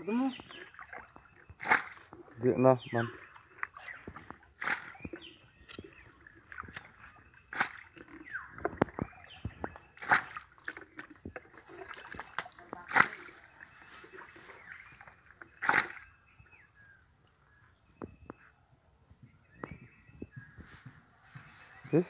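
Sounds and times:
water sloshing and dripping: 0.0 - 16.6
jug splashing in muddy water: 0.3 - 16.2.

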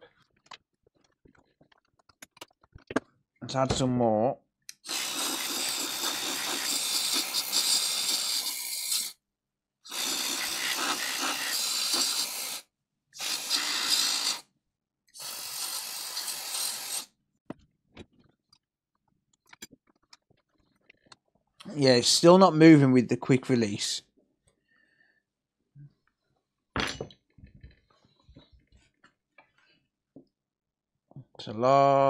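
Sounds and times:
aerosol spray hissing: 4.8 - 9.2, 9.9 - 12.6, 13.2 - 14.4, 15.2 - 17.1.

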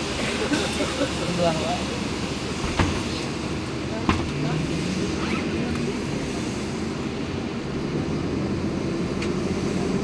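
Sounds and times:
bus engine drone: 0.0 - 10.0
road and tyre noise: 0.0 - 10.0.

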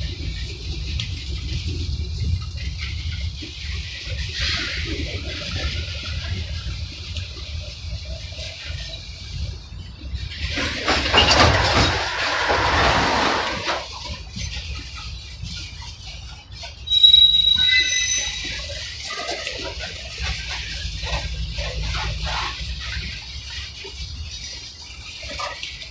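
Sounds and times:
rushing grinding of train: 0.0 - 25.9
train wheels rumbling on rail: 0.0 - 25.9
high-pitched wheel squeal: 16.6 - 20.5.

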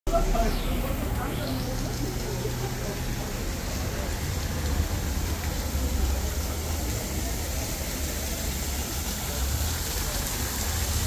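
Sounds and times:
crowd noise: 0.1 - 11.0.

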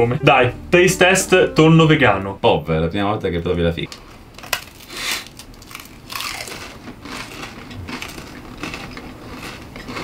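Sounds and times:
crackers crunching being chewed: 4.4 - 10.0.

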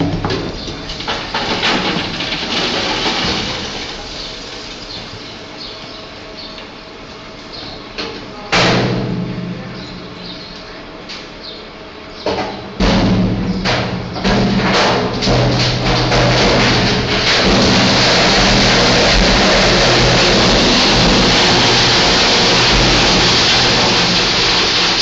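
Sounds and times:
steady machine hum: 0.0 - 25.0
bulk material pouring down a chute: 0.9 - 5.0, 15.0 - 25.0.

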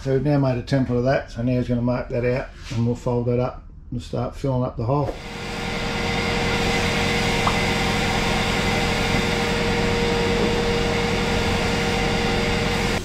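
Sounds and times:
workshop machine hissing and humming: 5.0 - 13.0.

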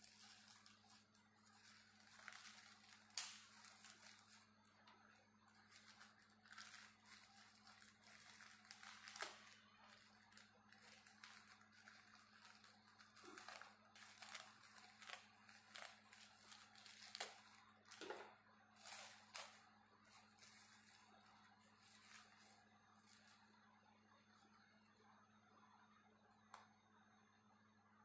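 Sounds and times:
plastic mailer crinkling: 0.0 - 23.4
sharp plastic crackles: 1.6 - 4.4, 5.8 - 20.7.

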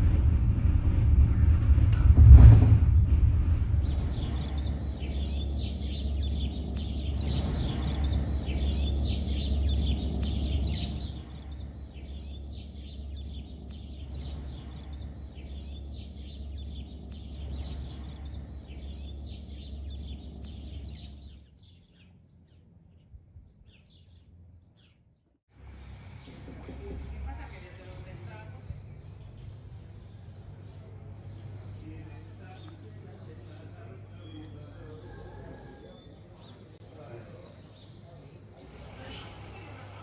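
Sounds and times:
low rumble: 0.0 - 21.7
small birds chirping: 3.7 - 40.0.

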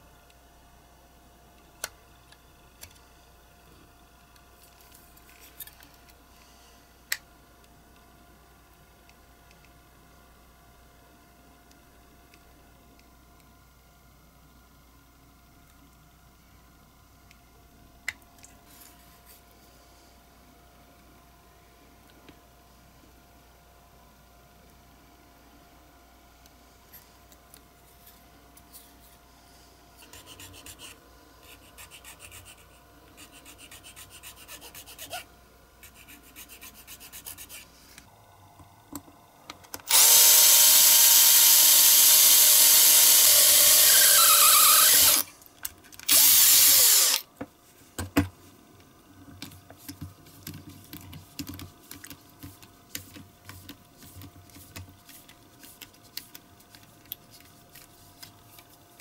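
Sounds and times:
cordless drill drilling metal: 39.9 - 45.3, 46.1 - 47.2.

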